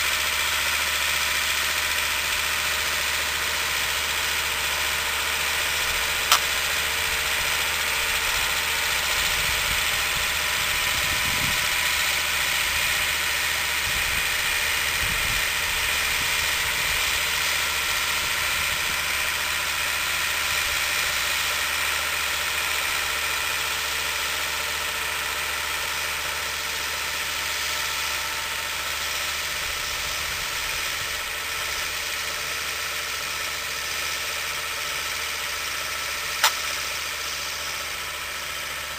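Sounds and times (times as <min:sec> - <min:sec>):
tractor diesel engine running: 0:00.0 - 0:38.9
sharp click: 0:06.3 - 0:06.6, 0:36.4 - 0:36.9.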